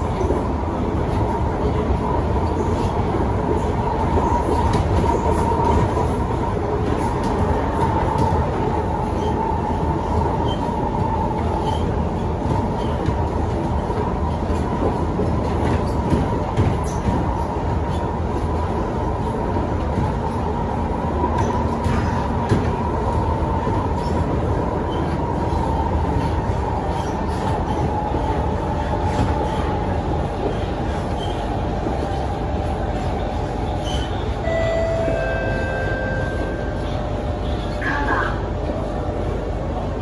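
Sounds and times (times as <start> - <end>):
train wheels rumbling on rail: 0.0 - 40.0
brief high tones: 34.4 - 36.8.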